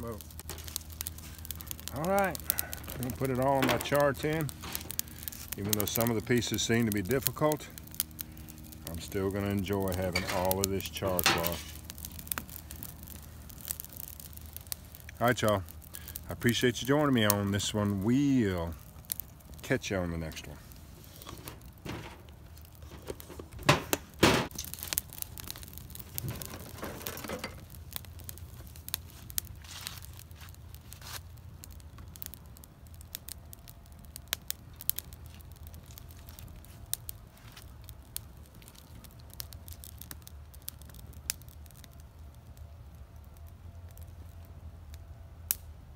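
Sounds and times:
rustling crinkling handling noise: 0:00.0 - 0:31.4
wood fire crackling: 0:00.0 - 0:45.9.

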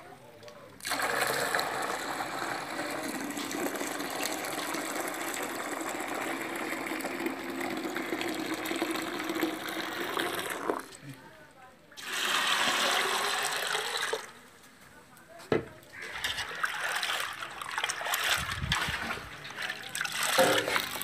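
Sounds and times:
water pouring into a bowl: 0:00.8 - 0:11.0, 0:12.0 - 0:14.4, 0:16.0 - 0:21.0.

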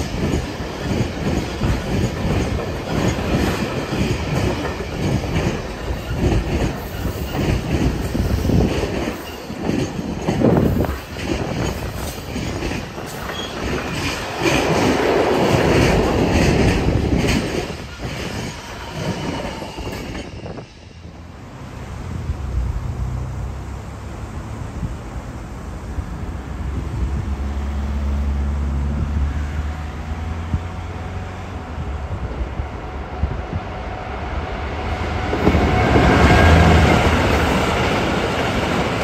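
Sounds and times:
train wheels clattering over rail joints: 0:00.0 - 0:20.8.

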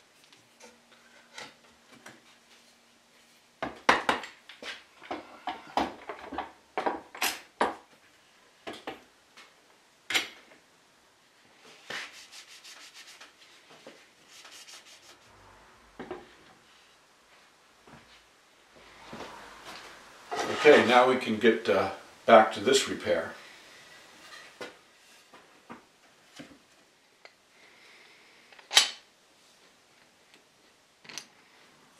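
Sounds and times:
rubbing and scraping on wood: 0:11.6 - 0:15.5, 0:18.8 - 0:21.4.

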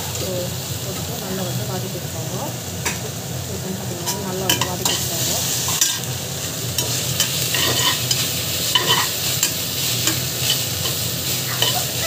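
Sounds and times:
onions sizzling in hot oil: 0:00.0 - 0:12.0
metal spatula scraping pot: 0:06.8 - 0:12.0.

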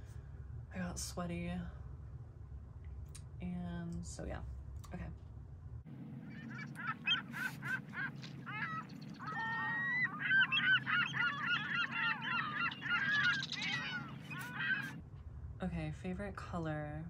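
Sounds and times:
low hum: 0:00.0 - 0:17.0
geese honking: 0:06.2 - 0:15.0.

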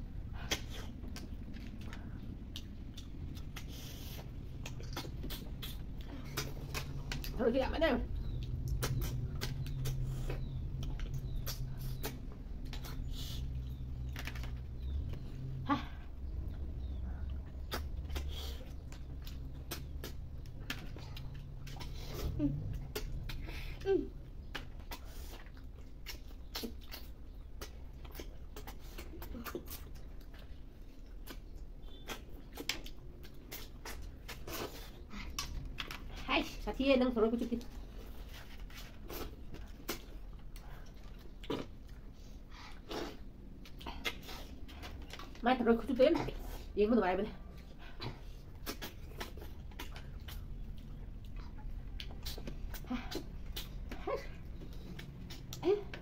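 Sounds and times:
steady low hum: 0:00.0 - 0:56.0
chewing mouth sounds: 0:00.1 - 0:07.4, 0:08.1 - 0:36.2, 0:37.5 - 0:45.4, 0:47.4 - 0:56.0
sucking clicks and slurps: 0:00.2 - 0:07.4, 0:08.1 - 0:36.2, 0:47.4 - 0:56.0.

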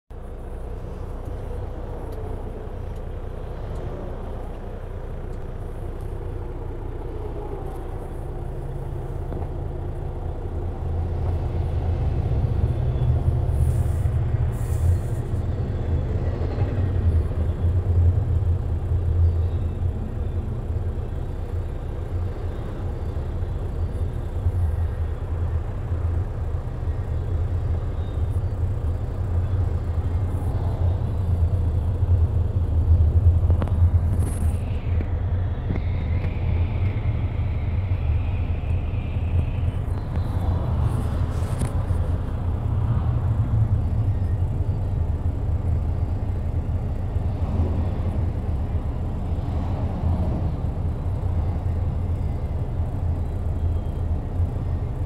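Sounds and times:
freight train rumbling past: 0:06.6 - 0:20.8, 0:34.8 - 0:54.0.

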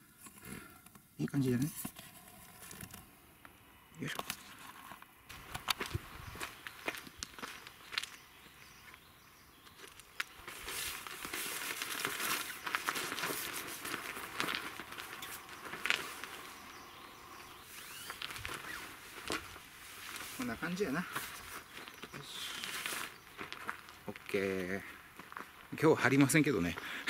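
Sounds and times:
footsteps on gravel: 0:05.3 - 0:26.9
tarp fabric rustling: 0:10.0 - 0:24.4.

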